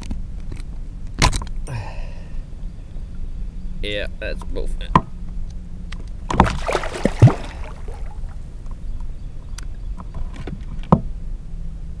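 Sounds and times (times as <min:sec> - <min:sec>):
handling noise in kayak: 0:06.2 - 0:08.8.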